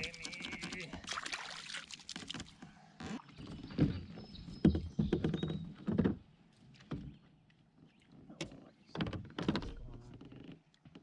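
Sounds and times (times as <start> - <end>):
kayak paddle splashing: 0.0 - 4.0.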